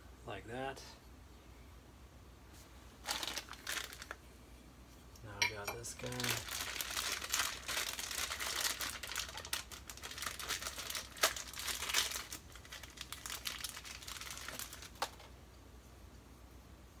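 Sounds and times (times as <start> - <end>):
plastic wrapping crinkling: 3.0 - 4.2, 5.7 - 15.3.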